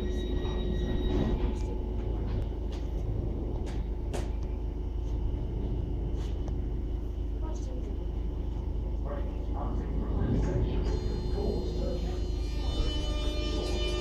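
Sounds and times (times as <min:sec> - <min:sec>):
train low rumble: 0:00.0 - 0:14.0
high steady tone: 0:10.7 - 0:14.0.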